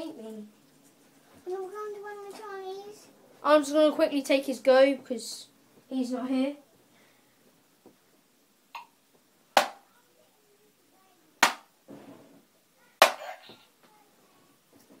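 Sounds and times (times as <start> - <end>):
darts hitting electronic dartboard: 9.6 - 9.8, 11.4 - 11.7.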